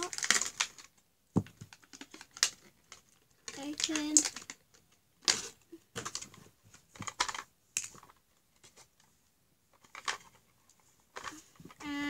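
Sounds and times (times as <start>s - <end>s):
plastic packaging crackling: 0.0s - 0.9s.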